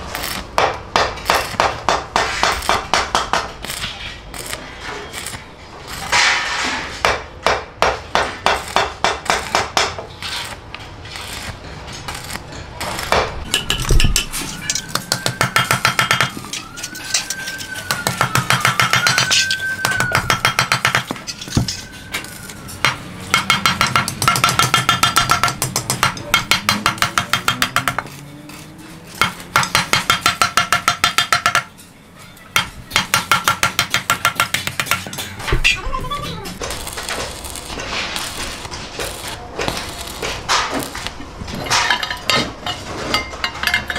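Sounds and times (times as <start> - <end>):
faint wailing tone: 14.4 - 20.4, 21.2 - 23.2.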